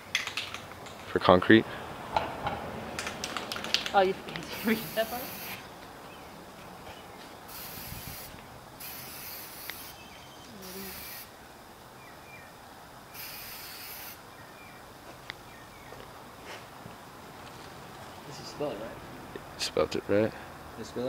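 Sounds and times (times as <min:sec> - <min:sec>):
spray can hissing: 0:04.5 - 0:05.6, 0:07.5 - 0:11.3, 0:13.2 - 0:14.2.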